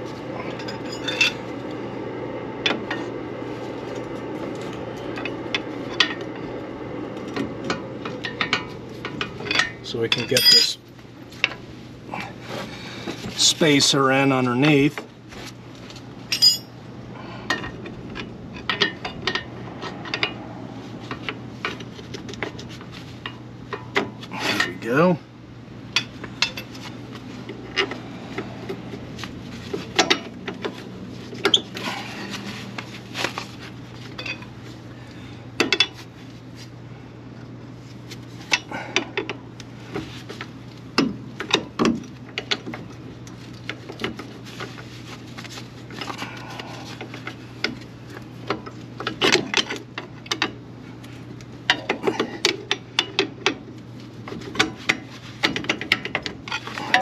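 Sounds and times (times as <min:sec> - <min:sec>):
low hum: 0:00.0 - 0:53.1
metal tools clinking: 0:00.4 - 0:01.4, 0:08.2 - 0:10.8, 0:16.3 - 0:16.8, 0:34.0 - 0:34.6.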